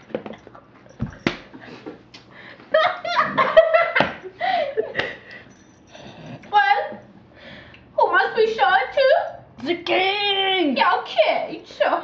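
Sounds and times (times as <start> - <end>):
people laughing: 2.8 - 5.3.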